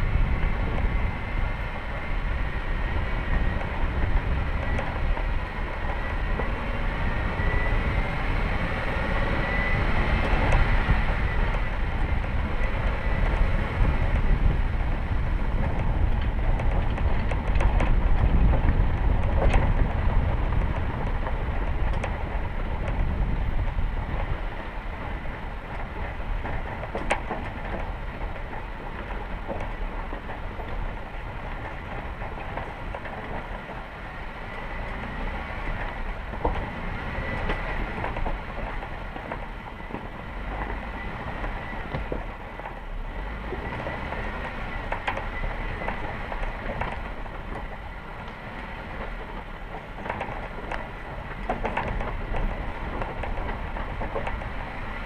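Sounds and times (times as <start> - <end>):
vehicle rumble on rough ground: 0.0 - 55.0
rattles and knocks: 43.5 - 54.9.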